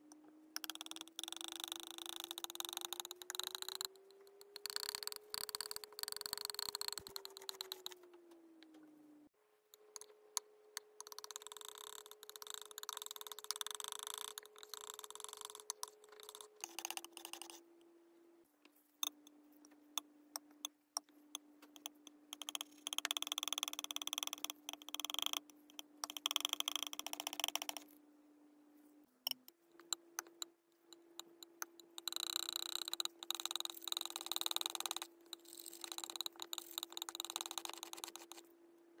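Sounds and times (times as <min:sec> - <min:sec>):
brush squishing thick paint: 0:06.9 - 0:08.0, 0:35.4 - 0:38.5.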